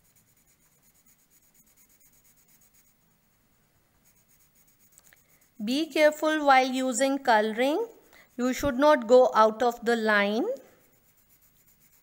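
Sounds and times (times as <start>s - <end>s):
colored pencil scratching on paper: 0.0s - 12.0s.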